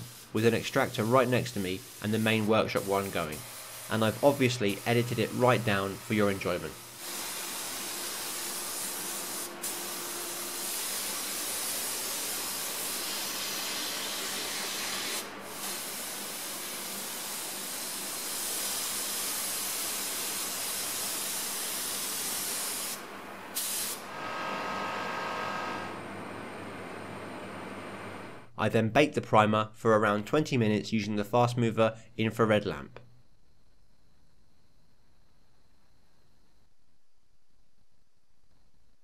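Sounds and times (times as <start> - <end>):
spray gun hissing: 0.0 - 24.2.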